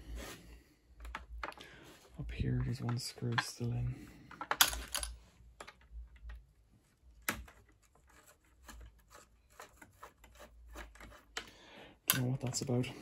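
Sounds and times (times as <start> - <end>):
screwdriver and plastic parts clicking: 2.5 - 6.5.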